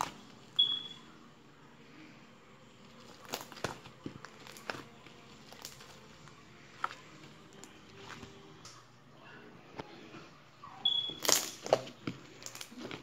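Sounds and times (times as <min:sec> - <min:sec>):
slime popping and squelching: 0:03.0 - 0:06.1, 0:10.8 - 0:13.0.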